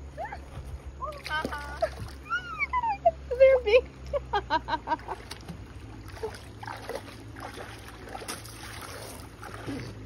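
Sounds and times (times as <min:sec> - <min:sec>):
steady low hum: 0:00.0 - 0:10.0
splashing through shallow water: 0:01.0 - 0:02.8, 0:05.0 - 0:10.0.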